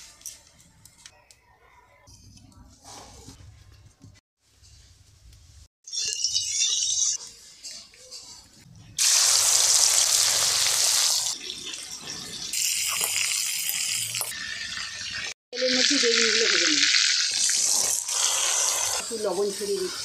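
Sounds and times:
shrimp sizzling in hot oil: 0:09.0 - 0:20.0.

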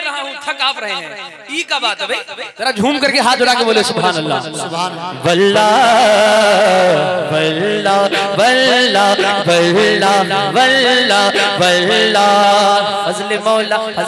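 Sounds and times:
man singing into microphone: 0:03.5 - 0:14.0.

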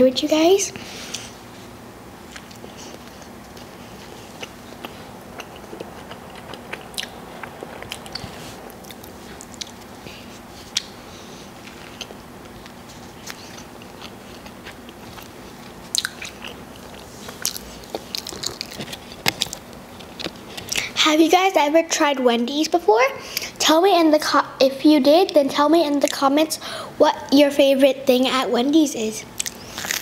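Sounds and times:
person biting and chewing: 0:02.3 - 0:11.0, 0:11.6 - 0:20.9, 0:29.4 - 0:30.0.

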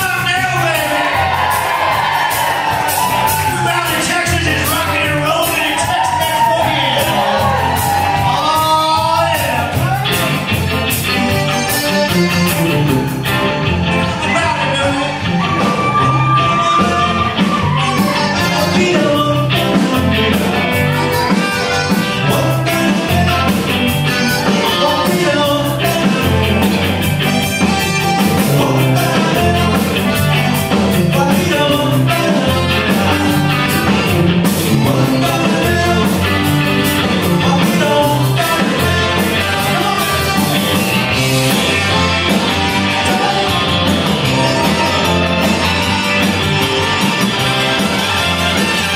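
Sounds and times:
live rock band playing: 0:00.0 - 0:48.9
accordion: 0:10.8 - 0:14.3, 0:18.1 - 0:48.9
lead vocal singing: 0:14.2 - 0:27.0, 0:28.3 - 0:30.2, 0:30.9 - 0:36.6, 0:37.2 - 0:40.8, 0:42.6 - 0:45.2.

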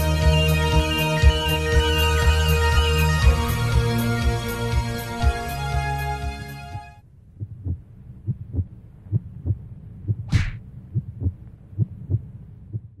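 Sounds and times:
heartbeat thumps: 0:06.7 - 0:13.0
short whoosh: 0:10.2 - 0:10.7.

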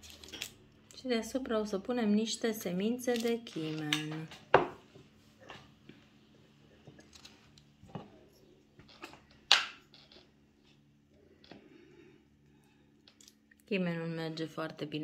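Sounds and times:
kitchen items knocking on wood: 0:04.1 - 0:04.9.

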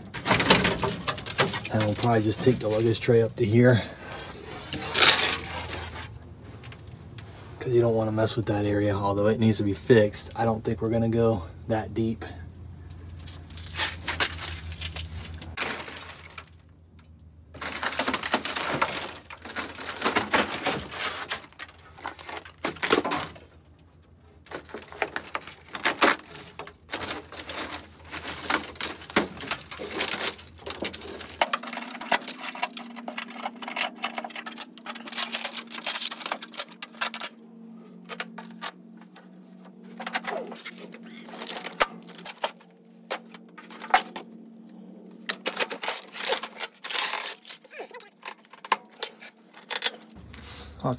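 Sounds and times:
brittle trim being torn out: 0:24.5 - 0:37.4, 0:45.3 - 0:50.2.

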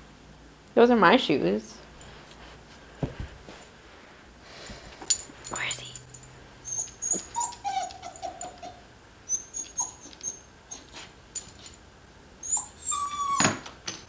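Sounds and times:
puppy whimpering: 0:06.6 - 0:11.1, 0:12.4 - 0:13.6.

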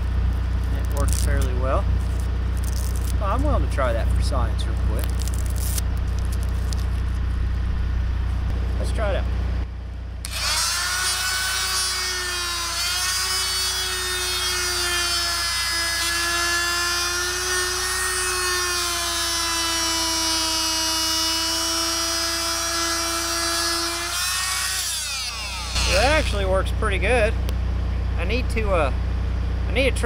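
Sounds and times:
oscillating multi-tool cutting rubber: 0:02.1 - 0:03.2, 0:10.2 - 0:26.4.

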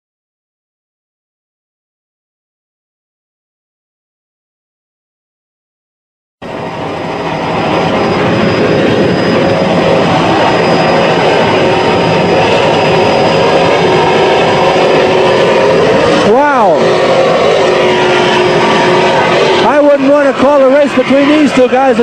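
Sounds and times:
powerboat engines roaring: 0:06.5 - 0:22.0.

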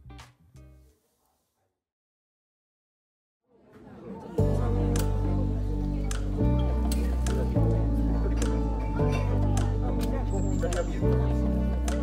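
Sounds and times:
bass line: 0:04.4 - 0:12.0
light percussion ticks: 0:06.1 - 0:08.6, 0:09.5 - 0:11.2, 0:11.8 - 0:12.0.

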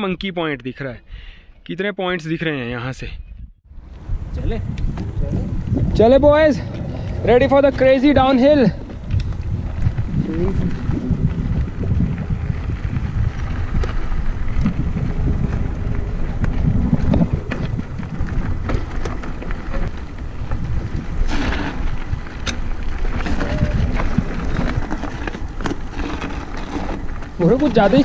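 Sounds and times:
wind buffeting microphone: 0:03.2 - 0:28.0
bike rattling over rough ground: 0:03.7 - 0:28.0
tyres rolling over dirt: 0:04.9 - 0:28.0.

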